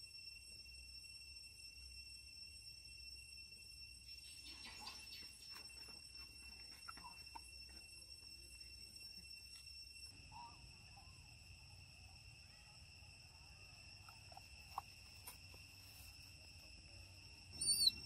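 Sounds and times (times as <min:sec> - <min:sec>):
insects droning: 0:00.0 - 0:18.0
short high chirp: 0:17.6 - 0:18.0.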